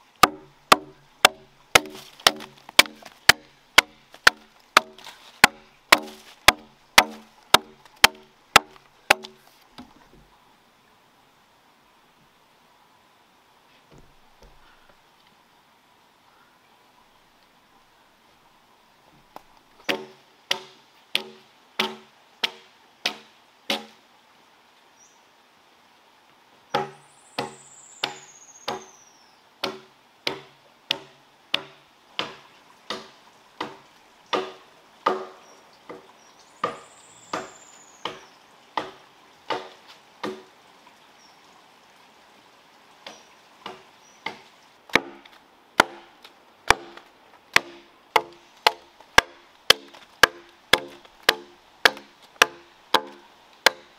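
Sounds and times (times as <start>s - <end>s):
axe chopping log: 0.2s - 10.0s, 19.8s - 23.9s, 26.7s - 28.9s, 29.6s - 36.0s, 36.6s - 40.5s, 43.1s - 46.1s, 46.7s - 53.9s.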